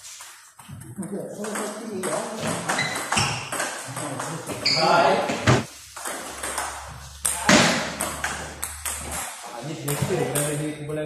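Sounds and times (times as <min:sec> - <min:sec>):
table tennis balls clicking: 0:01.4 - 0:04.6, 0:06.0 - 0:10.6.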